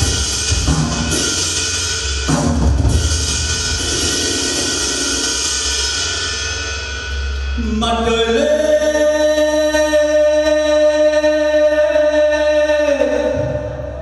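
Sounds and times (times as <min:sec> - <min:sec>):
backing track: 0:00.0 - 0:14.0
man singing long note: 0:07.6 - 0:14.0.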